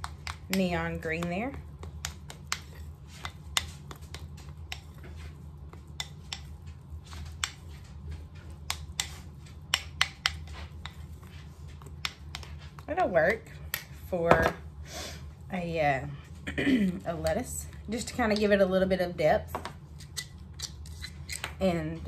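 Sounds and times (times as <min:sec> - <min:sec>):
spoon scraping ceramic bowl: 0:20.0 - 0:21.6.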